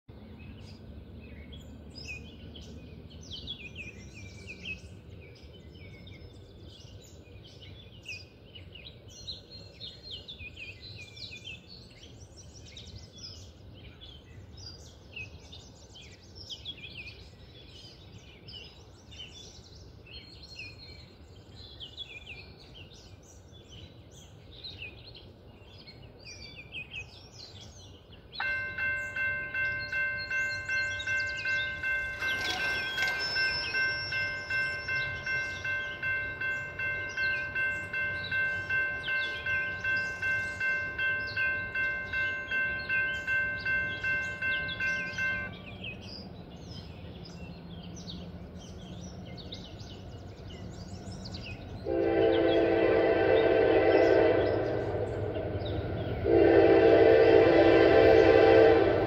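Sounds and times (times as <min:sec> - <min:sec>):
birds singing: 0:00.1 - 0:59.0
railroad crossing warning bell: 0:28.4 - 0:45.9, 0:51.8 - 0:59.0.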